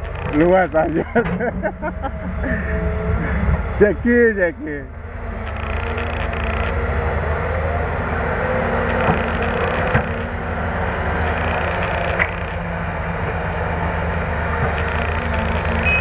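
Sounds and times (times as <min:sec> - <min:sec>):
excavator diesel engine and hydraulics: 0:00.0 - 0:16.0.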